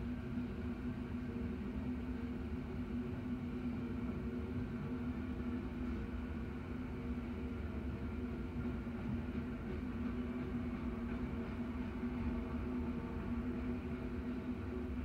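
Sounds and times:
freight train rumbling past: 4.0s - 15.0s.

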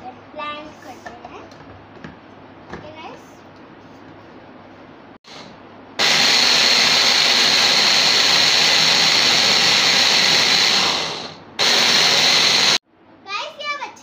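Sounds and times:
electric hand blender whining: 5.3s - 12.8s.

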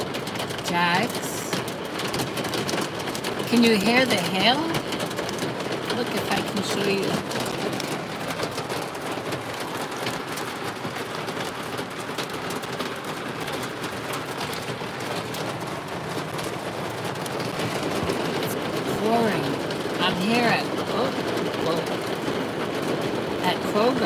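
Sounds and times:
hail and rain on car roof: 0.0s - 24.0s.

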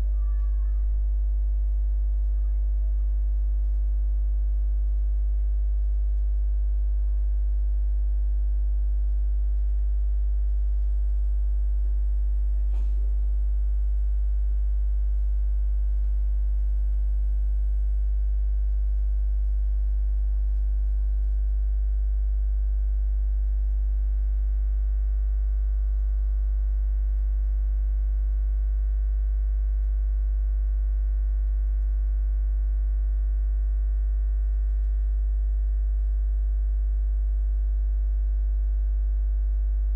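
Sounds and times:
electrical mains hum: 0.0s - 39.9s
faint click: 34.7s - 35.1s.

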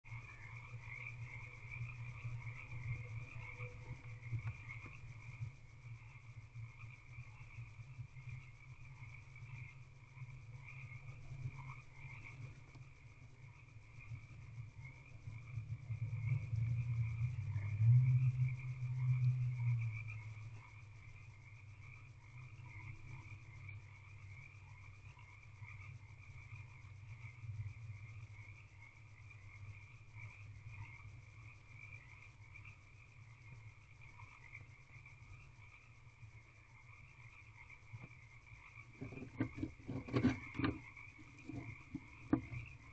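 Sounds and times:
frog chorus calling: 0.0s - 42.9s
knocks and scrapes in nest box: 38.9s - 42.9s.

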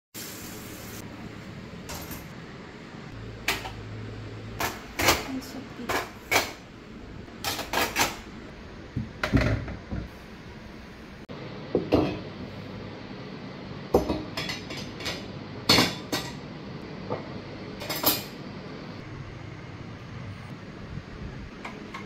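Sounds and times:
metal kitchenware clinking: 1.9s - 2.4s, 4.6s - 6.6s, 7.4s - 8.3s, 14.0s - 16.4s, 17.8s - 18.4s.

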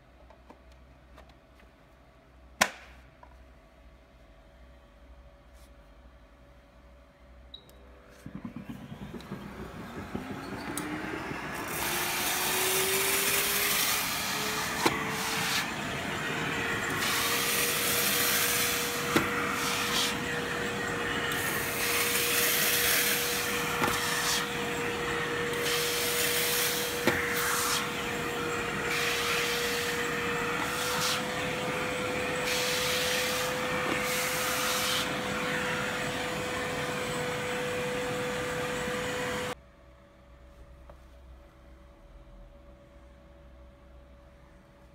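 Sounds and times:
vacuum cleaner motor whine: 7.8s - 39.6s.

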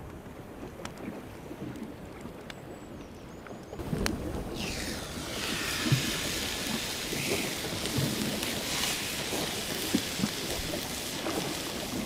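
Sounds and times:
steak sizzling on grill pan: 4.6s - 12.0s.

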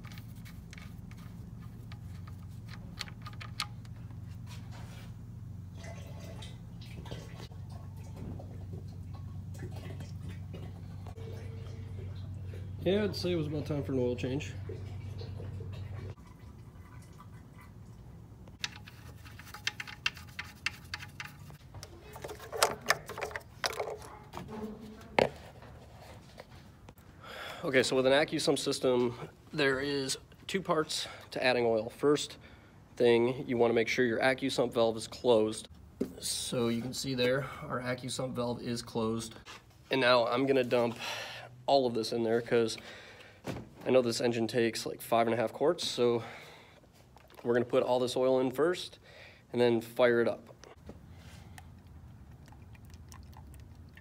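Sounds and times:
light metallic clicks and taps: 0.0s - 4.0s
steady low hum: 0.0s - 33.5s.

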